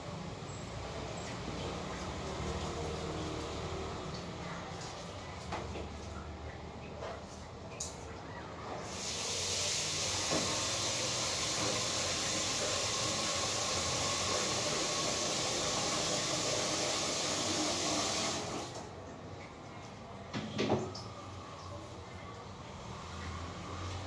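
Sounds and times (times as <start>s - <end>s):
rushing water hiss: 8.8s - 18.8s.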